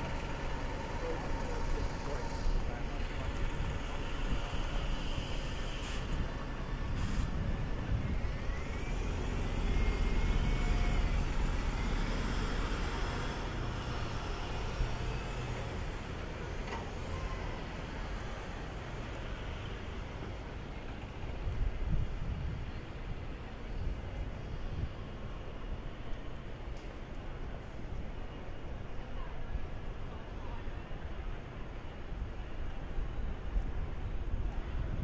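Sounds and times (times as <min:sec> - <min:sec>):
bus engine running: 0:00.0 - 0:28.0
city street traffic: 0:00.0 - 0:35.0.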